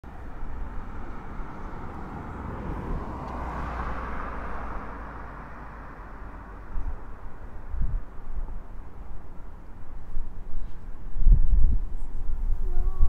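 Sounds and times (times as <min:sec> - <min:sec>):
wind rumbling on microphone: 0:00.1 - 0:13.0.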